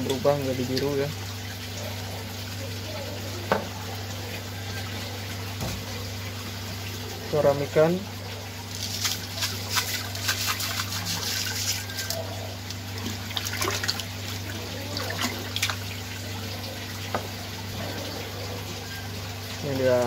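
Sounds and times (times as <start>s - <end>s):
salt splashing into water: 8.6s - 12.2s.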